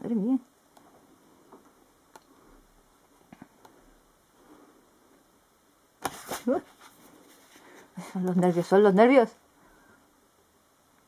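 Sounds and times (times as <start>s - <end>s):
comic book pages turning: 6.0s - 7.6s.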